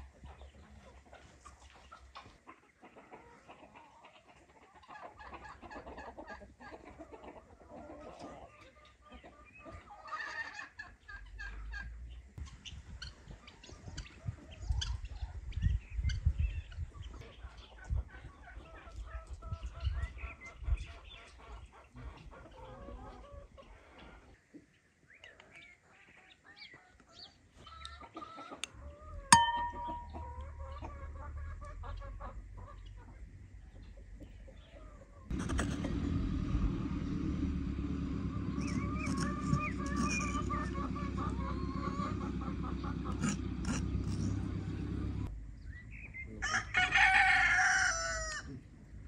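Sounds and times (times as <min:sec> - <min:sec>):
chickens clucking: 0:00.0 - 0:36.3, 0:37.7 - 0:45.3
loud low rumbling: 0:35.3 - 0:45.8.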